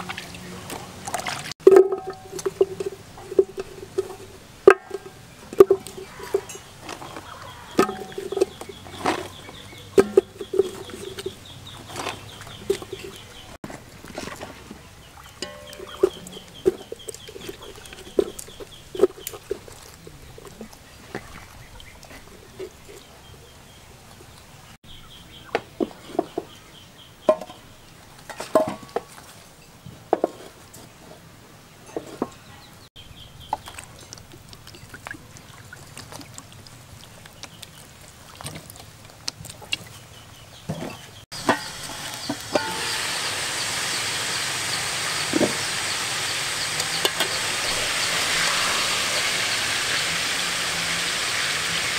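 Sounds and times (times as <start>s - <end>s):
metal pot knocking and clattering: 1.6s - 11.4s, 15.4s - 19.6s, 27.3s - 27.6s, 28.3s - 29.1s, 40.7s - 43.1s, 47.0s - 47.5s
pot boiling hiss: 1.9s - 14.0s, 41.3s - 51.9s
chickens clucking: 1.9s - 24.4s, 40.7s - 51.9s.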